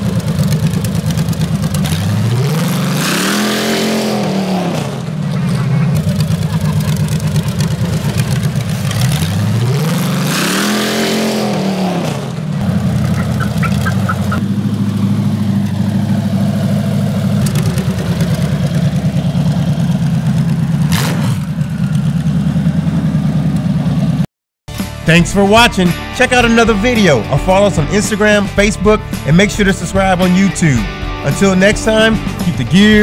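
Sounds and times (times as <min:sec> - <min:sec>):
engine rumbling and revving: 0:00.0 - 0:24.3, 0:25.1 - 0:33.0.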